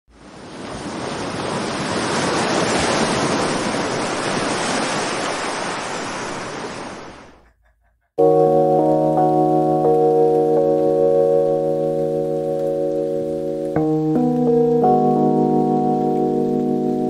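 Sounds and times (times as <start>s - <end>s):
ocean waves washing on shore: 0.1s - 7.4s
music with held notes: 8.2s - 17.0s.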